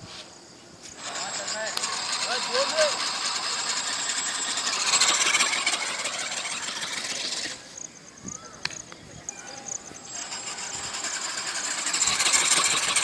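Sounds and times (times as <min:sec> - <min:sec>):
ornithopter motor buzzing whir: 0:01.0 - 0:07.8, 0:09.6 - 0:13.0.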